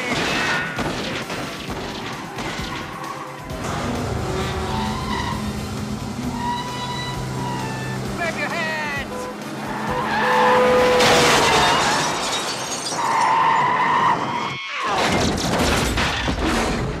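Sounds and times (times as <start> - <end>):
car tyres squealing: 2.2 - 5.6, 6.2 - 8.2, 9.1 - 15.1
car crash: 10.3 - 17.0
glass shattering: 10.9 - 13.5
debris clattering: 10.9 - 13.7.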